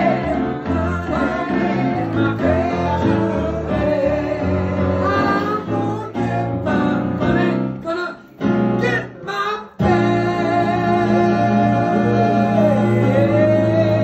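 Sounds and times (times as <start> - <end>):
group singing in harmony: 0.0 - 7.8, 9.4 - 14.0
keyboard accompaniment: 0.0 - 14.0.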